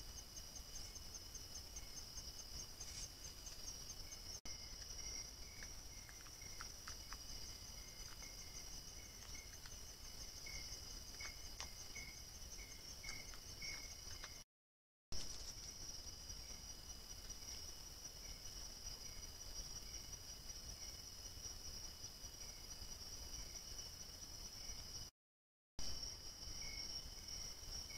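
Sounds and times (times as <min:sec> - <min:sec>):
crickets trilling: 0:00.0 - 0:14.4, 0:15.2 - 0:25.1, 0:25.8 - 0:27.9
faint steady tone: 0:00.0 - 0:14.4, 0:25.8 - 0:27.9.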